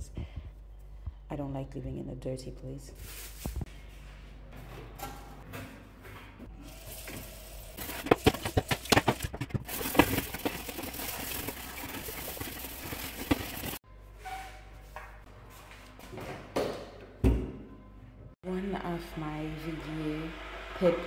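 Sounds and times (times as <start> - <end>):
scrubbing metal tray: 7.8 - 13.8.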